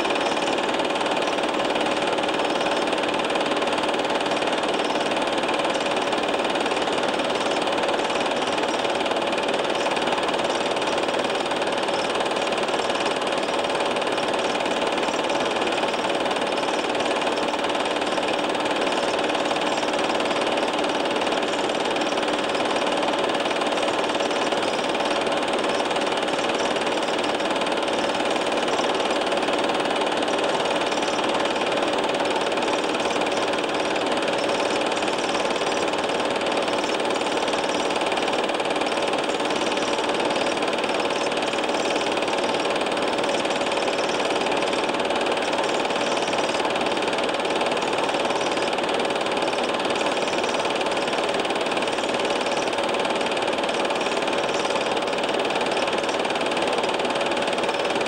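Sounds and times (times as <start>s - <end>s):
film projector running: 0.0s - 58.0s.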